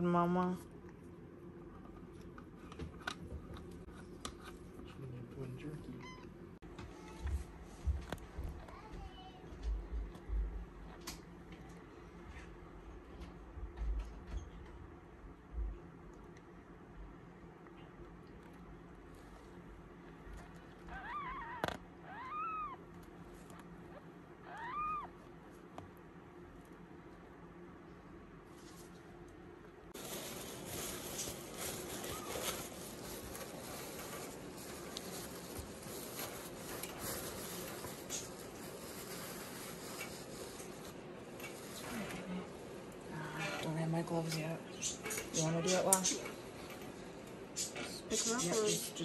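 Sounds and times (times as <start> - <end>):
kitten mewing: 20.9 - 22.8, 23.9 - 25.2
absorbent pad rustling: 30.0 - 42.0.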